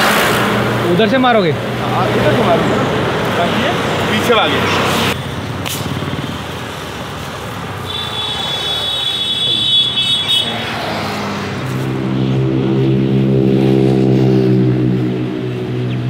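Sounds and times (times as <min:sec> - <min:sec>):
highway traffic: 0:00.0 - 0:16.0
low pitched drone: 0:11.7 - 0:16.0.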